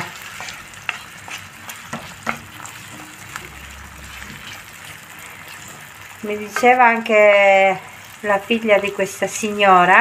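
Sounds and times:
wooden spoon scraping a pan: 0:00.0 - 0:06.9
food sizzling in a frying pan: 0:00.0 - 0:10.0.

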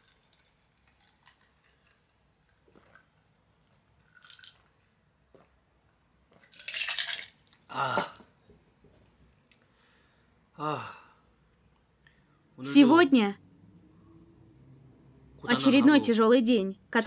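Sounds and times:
person swallowing: 0:07.7 - 0:08.4.

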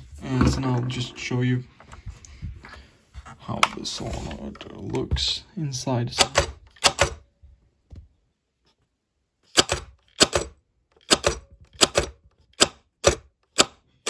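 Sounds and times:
solenoid pusher clacking: 0:09.5 - 0:13.8.

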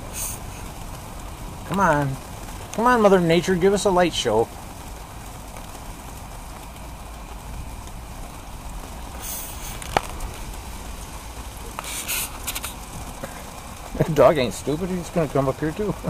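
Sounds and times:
rain hiss: 0:00.0 - 0:16.0.

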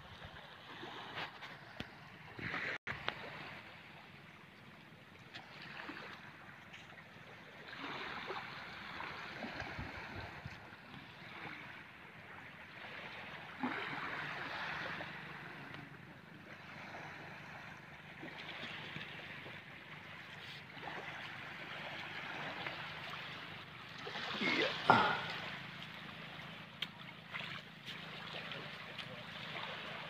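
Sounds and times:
sea water washing over sand: 0:07.6 - 0:30.0.

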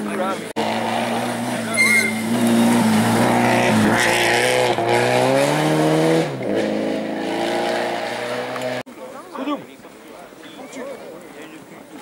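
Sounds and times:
rally car engine accelerating past: 0:00.6 - 0:08.8.

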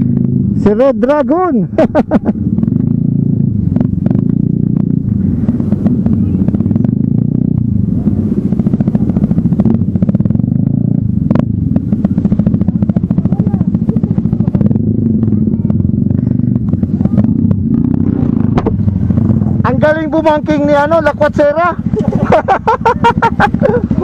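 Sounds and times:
motorcycle engine running: 0:00.0 - 0:24.0.

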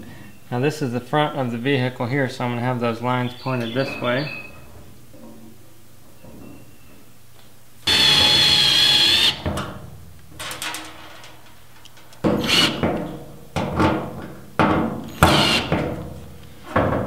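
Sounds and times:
cordless drill whining: 0:07.9 - 0:09.4, 0:12.4 - 0:12.8, 0:15.1 - 0:15.7.

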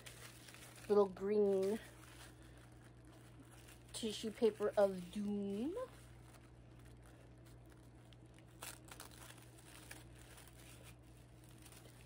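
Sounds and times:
tissue paper crinkling: 0:00.0 - 0:12.0.

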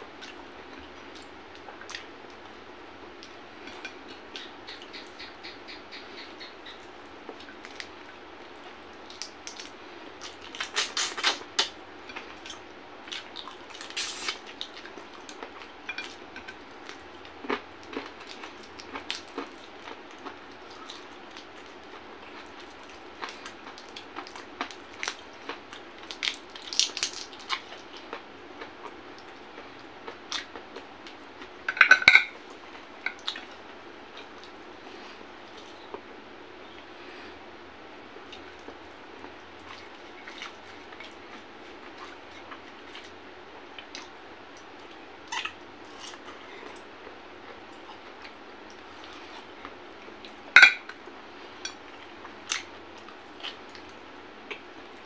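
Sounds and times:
person chewing: 0:06.1 - 0:36.0, 0:38.2 - 0:55.0
dishware clatter: 0:31.7 - 0:32.3, 0:50.6 - 0:50.8.

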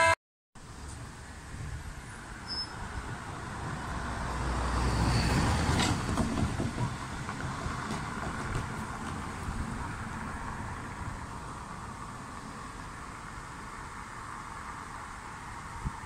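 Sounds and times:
steady road traffic: 0:00.0 - 0:16.0
car passing close by: 0:02.0 - 0:16.0.

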